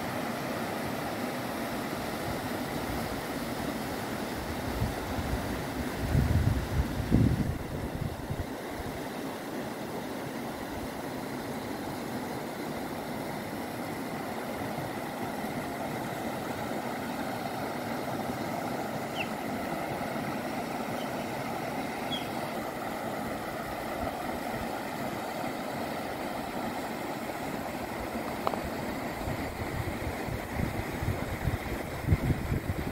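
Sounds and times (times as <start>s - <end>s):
river rushing over stones: 0.0s - 32.9s
faint high chirps: 19.1s - 19.4s, 22.0s - 22.4s.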